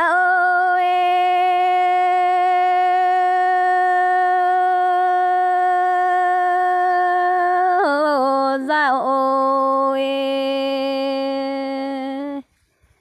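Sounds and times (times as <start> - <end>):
person singing long note: 0.0 - 12.4.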